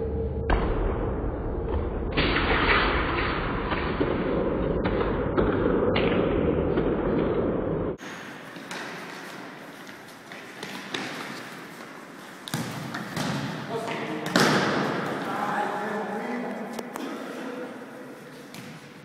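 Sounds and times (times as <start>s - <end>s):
players moving on court: 8.0s - 19.0s
ball being kicked: 12.5s - 13.6s
sharp knocks in hall: 12.5s - 15.2s.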